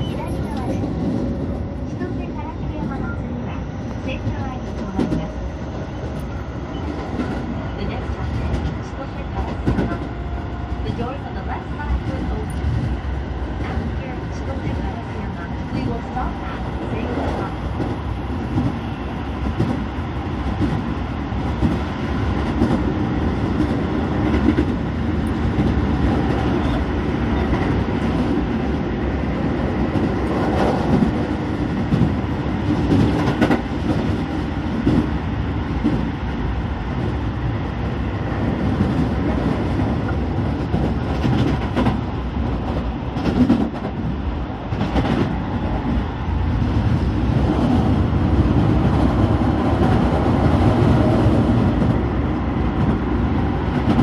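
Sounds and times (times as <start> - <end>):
rumble of train wheels on rail: 0.0 - 54.0
clacks over rail joints: 8.3 - 10.1, 38.7 - 44.0.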